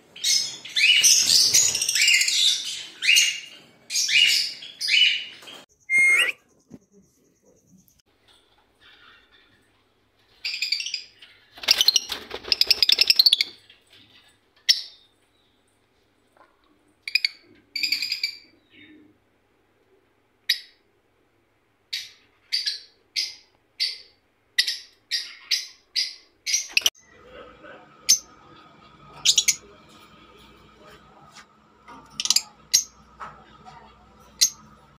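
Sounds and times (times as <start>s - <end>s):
lovebirds chirping: 0.2s - 8.0s, 28.0s - 30.9s.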